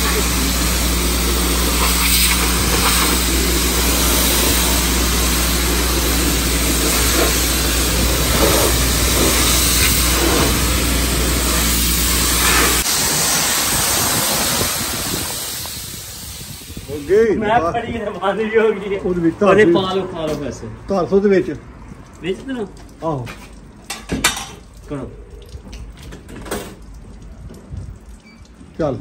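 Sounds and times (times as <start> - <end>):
pressure washer pump humming: 0.0 - 17.2
water jet hissing on car: 0.0 - 17.3.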